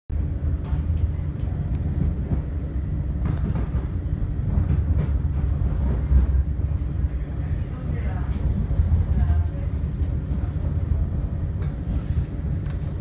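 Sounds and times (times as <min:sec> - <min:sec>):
train rumble: 0:00.1 - 0:13.0
wheels clacking on rails: 0:03.2 - 0:06.7.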